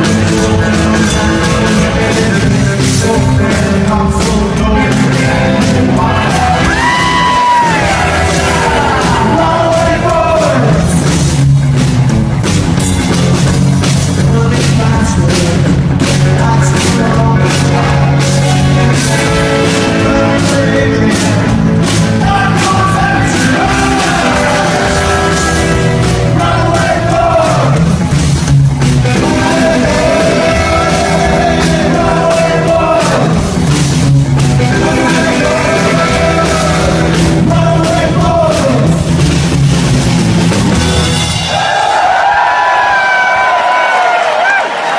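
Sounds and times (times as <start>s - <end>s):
lead vocal singing: 0.0s - 11.2s, 14.0s - 28.1s, 29.0s - 33.8s, 34.4s - 39.1s
rockabilly band playing: 0.0s - 44.9s.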